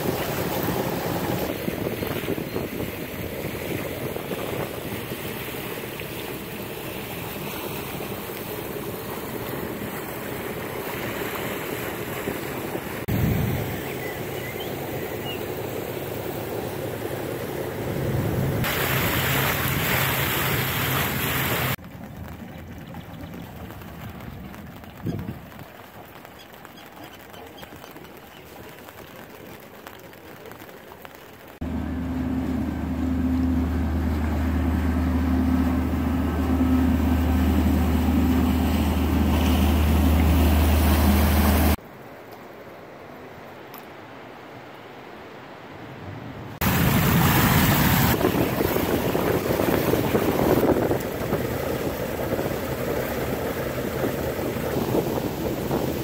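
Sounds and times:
wind buffeting microphone: 0.0 - 5.7, 21.8 - 26.0, 46.6 - 56.0
water rushing past boat: 0.0 - 56.0
low steady hum: 31.6 - 41.8.

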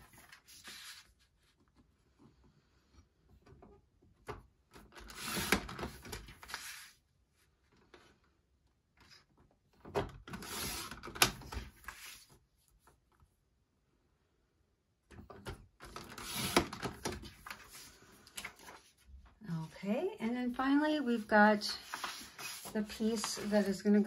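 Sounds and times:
paper rustling: 0.0 - 1.6, 15.9 - 19.1, 21.2 - 24.0.

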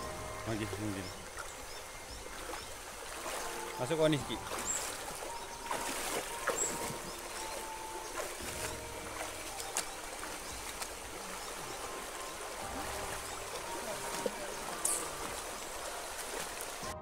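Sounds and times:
feet wading through water: 0.0 - 17.0
stream rushing over rocks: 0.0 - 17.0.

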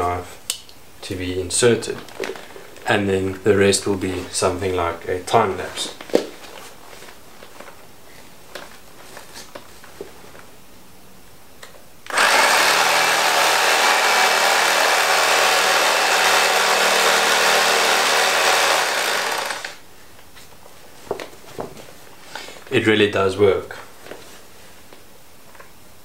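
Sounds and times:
electric carving knife cutting foam: 12.1 - 19.8.

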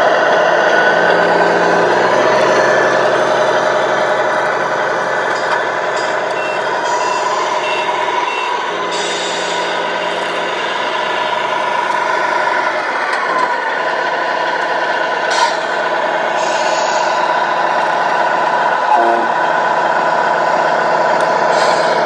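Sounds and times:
truck engine running: 0.0 - 22.0
reversing warning beeps: 5.4 - 10.2.

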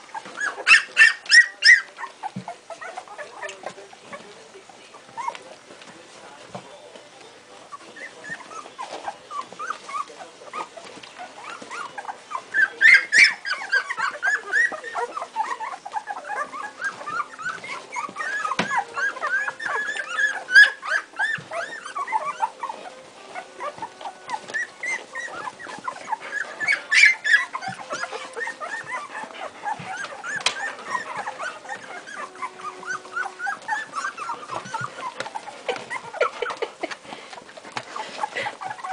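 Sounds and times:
puppies squeaking and whimpering: 0.0 - 38.9.

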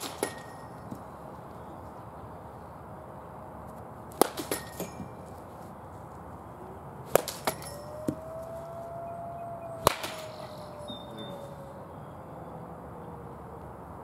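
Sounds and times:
baseball bat hitting ball: 0.0 - 1.1, 4.1 - 5.4, 7.1 - 8.7, 9.8 - 11.1.

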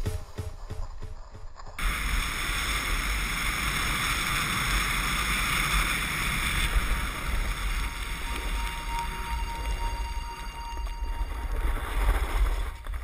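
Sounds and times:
snowboard sliding on snow: 0.0 - 13.0
faint steady whine: 1.8 - 13.0.

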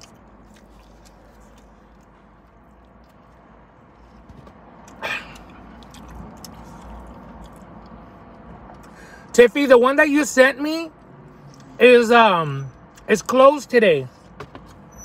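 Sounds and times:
man chewing food: 0.0 - 9.0.

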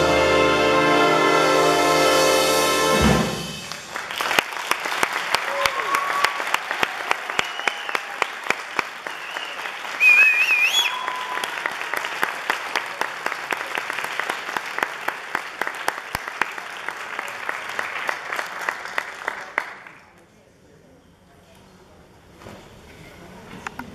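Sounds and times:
audience applauding: 3.6 - 20.2
cheers: 4.0 - 12.9
loud wavering high whistle: 9.1 - 11.6.

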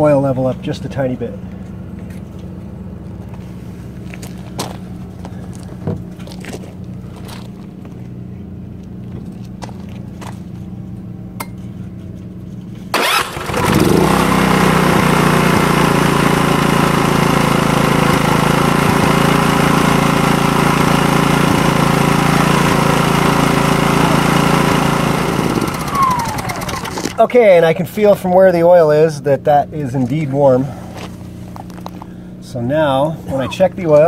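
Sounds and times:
generator running: 0.0 - 34.0.

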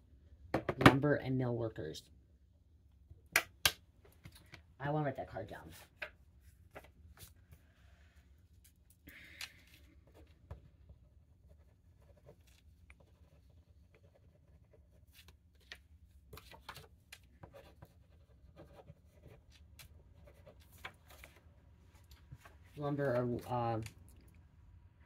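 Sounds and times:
pen scratching on card: 11.5 - 15.4, 17.4 - 20.8.

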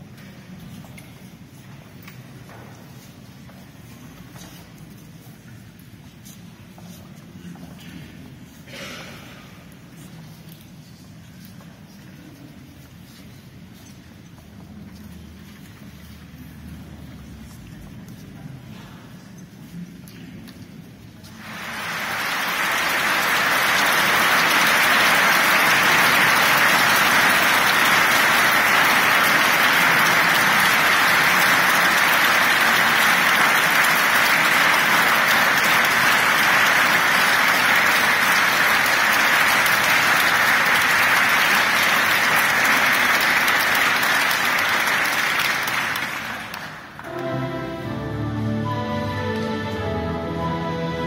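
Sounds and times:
congregation applauding: 21.2 - 48.0.

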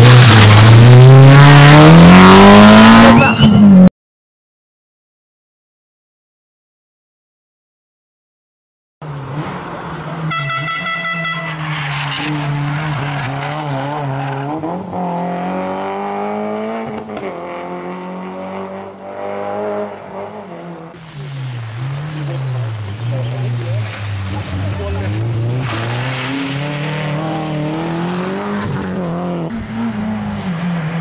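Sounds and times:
rally car engine revving: 0.0 - 3.9, 9.0 - 31.0
high horn-like tone: 10.3 - 11.7.

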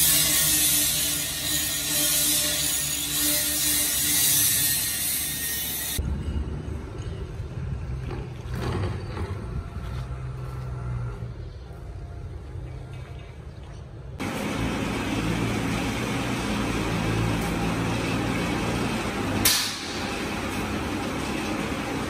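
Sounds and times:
machinery engine rumble: 6.0 - 22.0
forklift engine running: 14.2 - 22.0.

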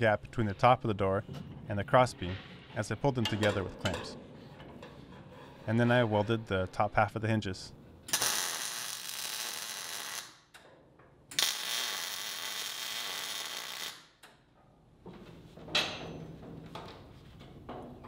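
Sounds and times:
welding arc crackling: 8.1 - 10.4, 11.3 - 14.1.

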